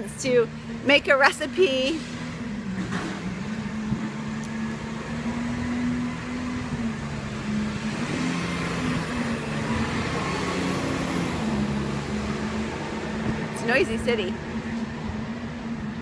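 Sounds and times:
low engine drone: 0.0s - 16.0s
vehicle rushing past: 1.9s - 16.0s.

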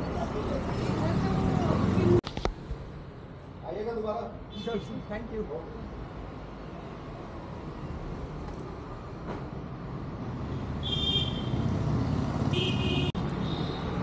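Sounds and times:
road traffic rumble: 0.0s - 14.0s
vehicle horn toots: 12.5s - 13.8s.

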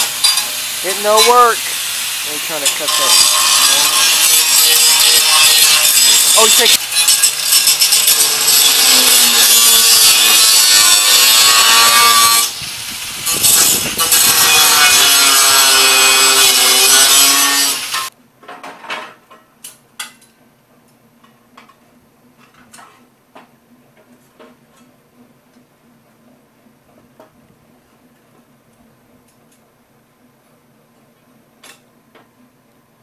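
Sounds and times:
angle grinder cutting steel: 0.0s - 18.1s.

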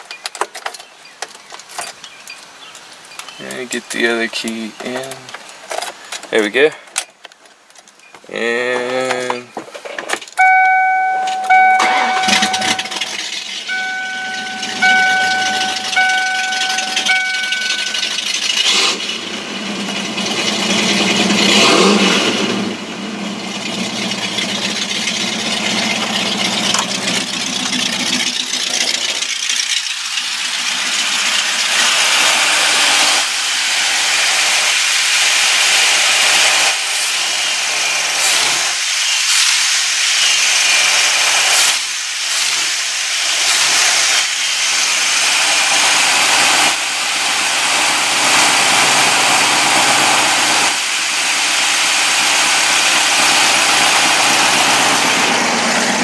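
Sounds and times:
repeating electronic chime: 10.4s - 18.6s
car engine revving: 10.4s - 56.0s.

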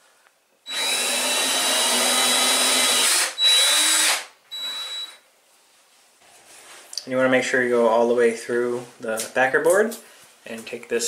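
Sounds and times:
power drill drilling into tile: 0.7s - 5.2s.

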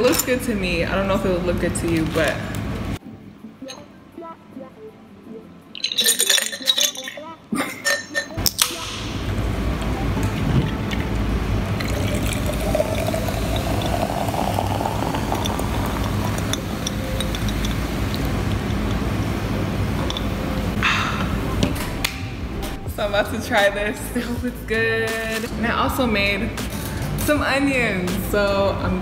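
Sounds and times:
sparkling water pouring into glass: 5.8s - 7.2s, 11.7s - 19.0s
fizzing: 10.6s - 18.4s
person sighing ahh: 20.8s - 21.3s.

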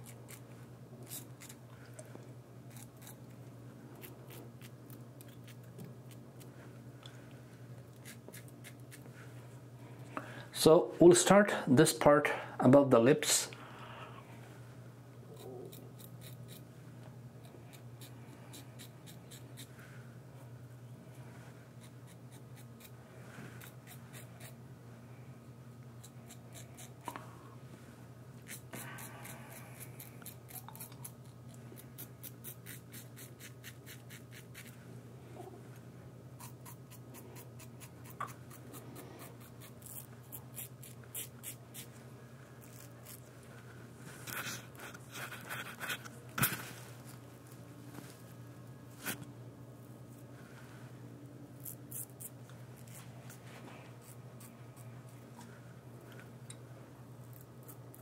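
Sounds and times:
razor scratching stubble: 8.0s - 9.0s, 15.3s - 16.7s, 17.7s - 19.7s, 21.8s - 23.0s, 28.4s - 34.8s, 36.4s - 42.0s, 42.6s - 43.3s, 51.6s - 53.0s.

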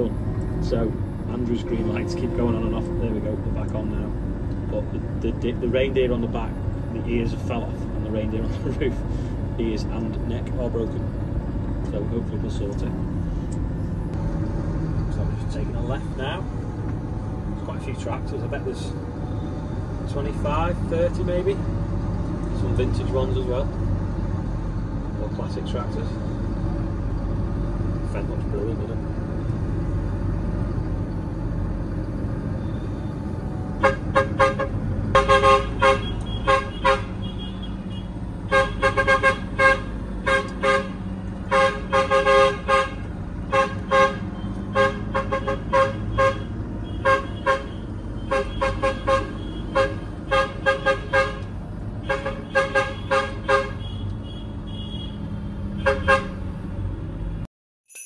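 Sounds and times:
vehicle horn short blasts: 33.8s - 55.2s, 55.8s - 56.4s.

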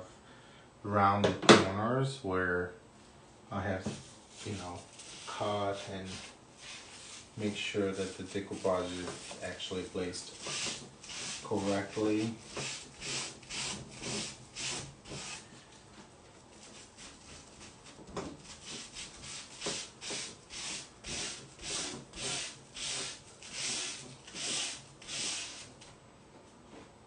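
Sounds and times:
hissy rubbing strokes on paper: 4.0s - 15.6s, 16.5s - 25.7s.

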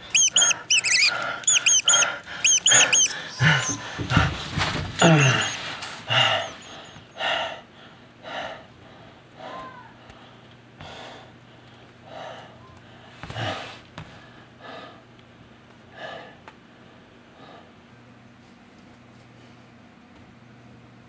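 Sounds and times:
man gasping for breath: 3.1s - 9.6s.

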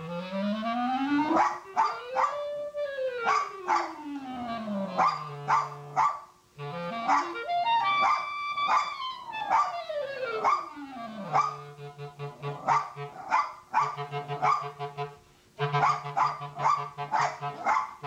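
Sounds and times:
clarinet playing scale runs: 0.0s - 6.0s, 6.6s - 13.3s, 14.0s - 17.7s
small dog barking: 1.4s - 2.5s, 3.2s - 4.0s, 4.9s - 6.3s, 7.0s - 7.4s, 8.0s - 10.7s, 11.3s - 11.7s, 12.4s - 14.8s, 15.8s - 18.0s.

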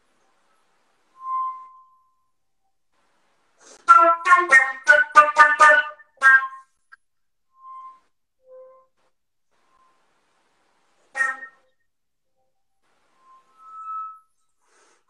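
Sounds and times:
flute playing: 3.8s - 6.8s, 11.1s - 11.8s.

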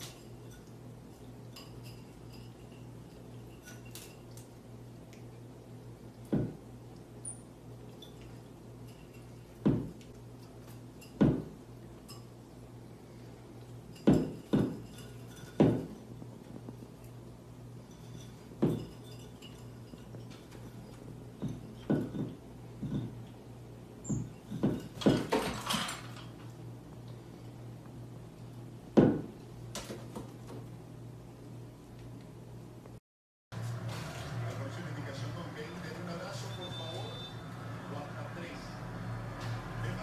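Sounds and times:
wooden ladder rungs knocking: 24.5s - 26.4s.

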